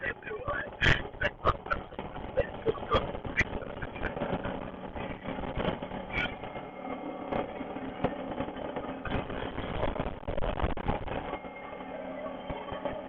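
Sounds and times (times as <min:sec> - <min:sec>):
vehicle engine humming: 0:00.0 - 0:10.0.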